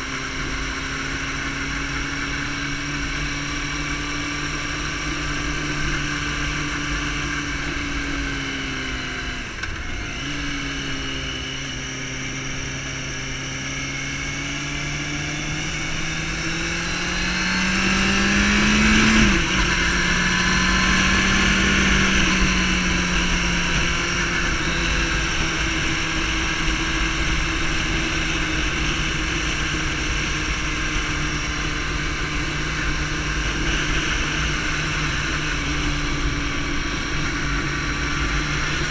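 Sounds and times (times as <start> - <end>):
motorcycle engine accelerating: 0.0 - 38.9.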